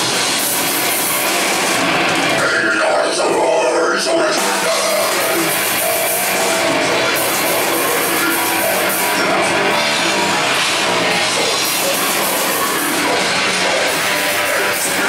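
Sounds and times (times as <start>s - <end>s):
drum kit: 0.0s - 2.8s, 4.3s - 15.0s
distorted electric guitars: 0.0s - 15.0s
heavy metal band playing live: 0.0s - 15.0s.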